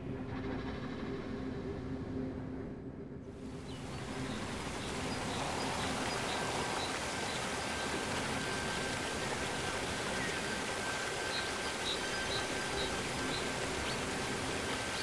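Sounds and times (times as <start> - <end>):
forest rushing hiss: 3.7 - 15.0.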